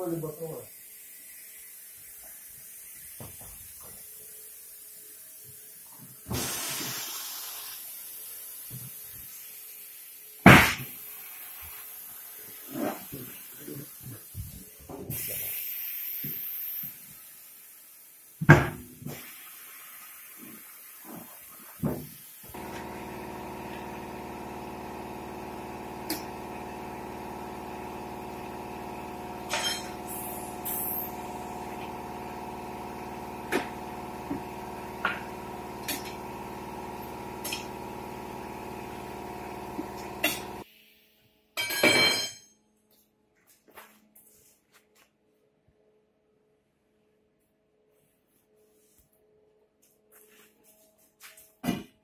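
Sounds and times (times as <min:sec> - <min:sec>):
turntable motor running: 0:22.6 - 0:40.6.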